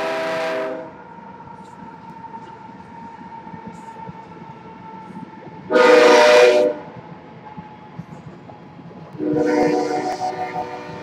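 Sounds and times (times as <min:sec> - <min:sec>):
train rolling past: 0:00.0 - 0:11.0
steady tones with high hiss: 0:09.2 - 0:11.0.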